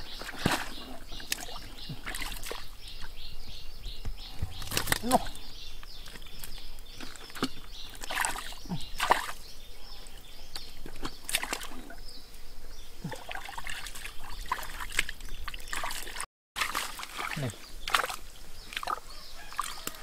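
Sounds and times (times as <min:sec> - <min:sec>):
hands sloshing through muddy water: 0:00.0 - 0:02.8, 0:06.0 - 0:09.4, 0:10.6 - 0:12.0, 0:13.0 - 0:20.0
splashes and drips: 0:00.0 - 0:03.1, 0:06.0 - 0:09.4, 0:10.8 - 0:12.0, 0:13.0 - 0:20.0.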